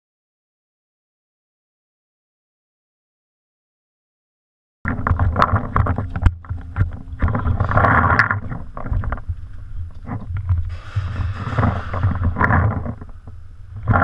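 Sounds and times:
camera handling rumble: 4.9 - 14.0
knocks and clicks: 4.9 - 14.0.

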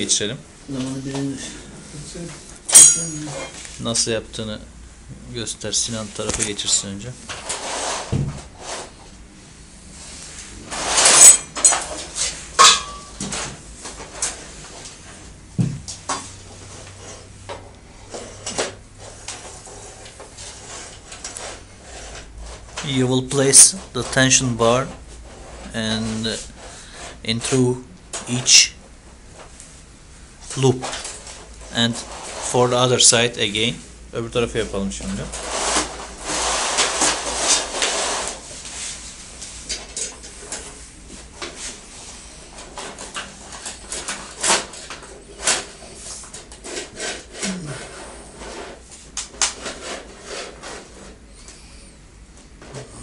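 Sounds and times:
metal bar clinking on chain-link: 2.7 - 3.3.

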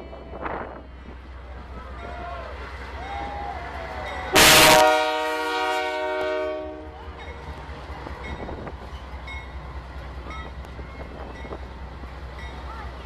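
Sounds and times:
train rumbling past: 0.0 - 13.0
locomotive air horn blast: 4.3 - 7.0.

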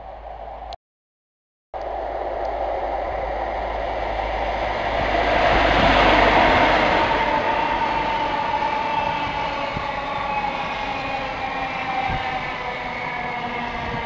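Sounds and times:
diesel train passing: 1.8 - 14.0
train coaches whining: 1.9 - 14.0.

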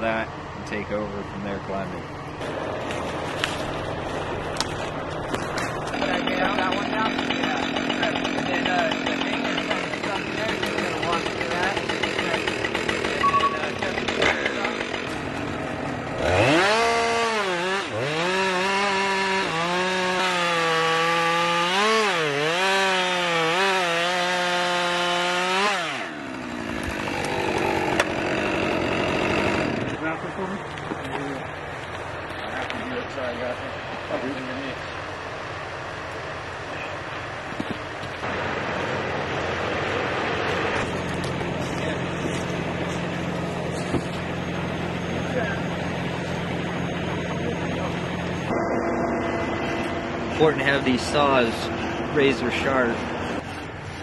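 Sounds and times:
truck engine humming: 0.0 - 54.0
chainsaw cutting log: 2.4 - 30.2, 39.6 - 54.0.

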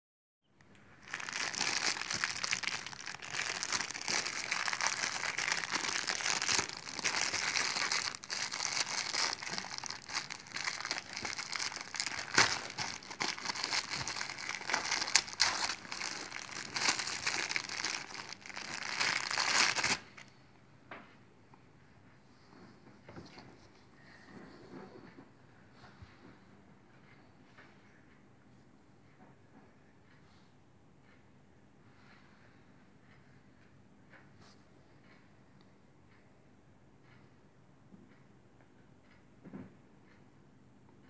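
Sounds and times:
plastic bag crinkling: 1.0 - 20.2.

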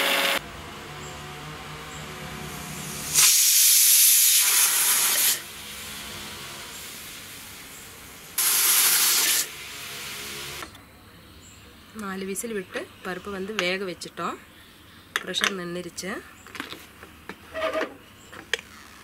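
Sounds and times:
pressure cooker whistling: 0.0 - 0.4, 8.4 - 10.7
steam hissing: 2.3 - 10.7.

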